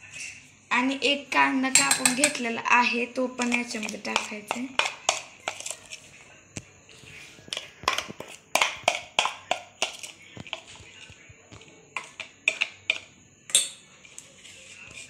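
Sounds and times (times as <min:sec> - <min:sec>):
clicks and taps on metal bowl: 0:01.7 - 0:02.4, 0:03.4 - 0:05.8, 0:07.5 - 0:10.8, 0:11.5 - 0:14.2.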